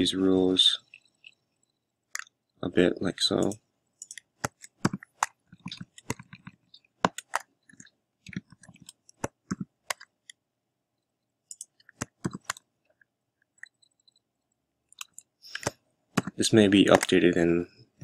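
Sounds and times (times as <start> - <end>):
computer keyboard typing: 3.4 - 10.1, 11.5 - 12.7, 13.4 - 14.3, 14.9 - 17.2.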